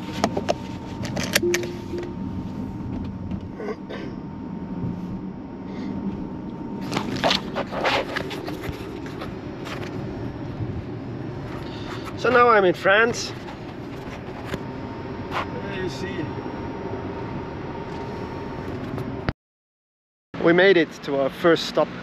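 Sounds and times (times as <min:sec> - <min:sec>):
road and tyre noise in car cabin: 0:00.0 - 0:19.3, 0:20.4 - 0:22.0
brief tone: 0:01.4 - 0:02.8.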